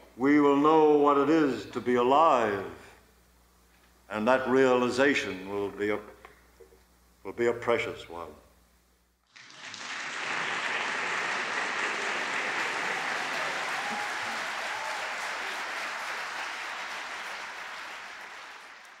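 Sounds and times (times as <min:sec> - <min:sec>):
audience applauding: 0:09.3 - 0:19.0.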